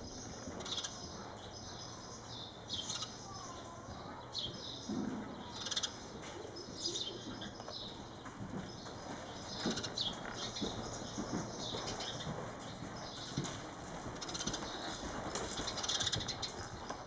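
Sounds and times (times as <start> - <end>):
muffled hoofbeats: 6.6 - 17.0.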